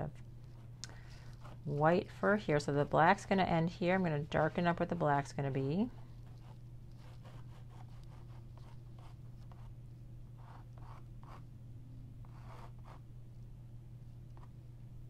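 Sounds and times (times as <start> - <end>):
steady low hum: 0.0 - 15.0
sketching tool scratching canvas: 6.2 - 9.7, 10.4 - 11.4, 12.2 - 13.0.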